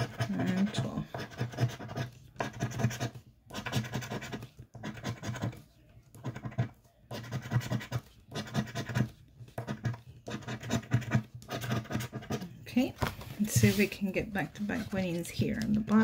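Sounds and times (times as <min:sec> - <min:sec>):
scratching lottery ticket coating: 0:00.0 - 0:12.6.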